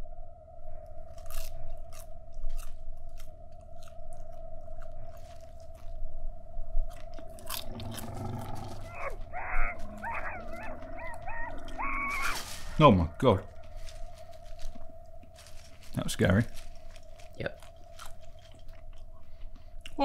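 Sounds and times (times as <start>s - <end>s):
popcorn crunching: 1.1s - 6.0s, 6.9s - 20.0s
low drone: 5.0s - 19.6s
wavering high-pitched sounds: 8.6s - 14.9s.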